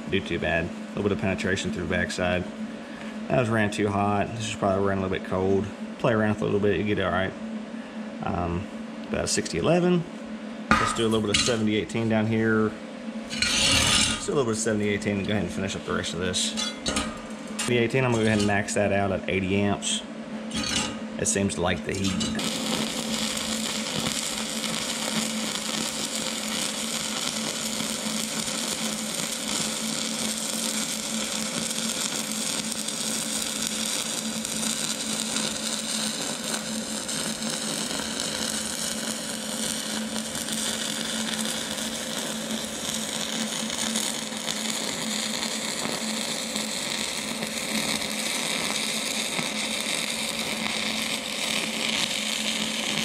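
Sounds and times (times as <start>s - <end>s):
faint steady hum: 0.0s - 53.0s
welding arc crackle: 10.7s - 12.2s, 13.3s - 18.8s, 20.5s - 53.0s.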